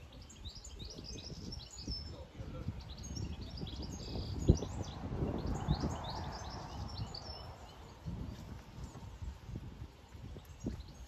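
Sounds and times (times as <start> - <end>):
birds chirping and singing: 0.0 - 11.0.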